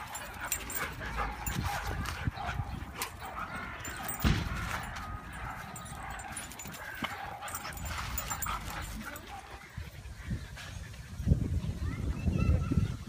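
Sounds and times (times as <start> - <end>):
scuffling: 0.0 - 9.4
dogs barking and yipping: 0.0 - 11.1
loud thump: 4.2 - 4.7.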